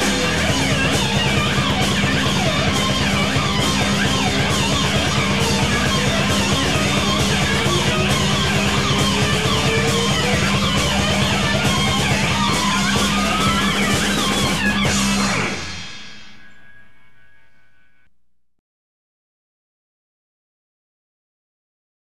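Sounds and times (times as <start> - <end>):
bass and drums beat: 0.0 - 16.8
electric guitar lead lines: 0.0 - 18.1.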